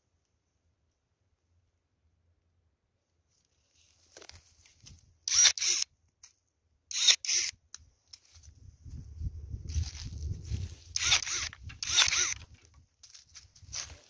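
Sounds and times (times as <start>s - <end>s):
branches rustling: 3.3s - 5.1s, 8.1s - 14.0s
electric pruning shears cutting: 5.3s - 5.8s, 6.9s - 7.5s, 11.0s - 12.5s.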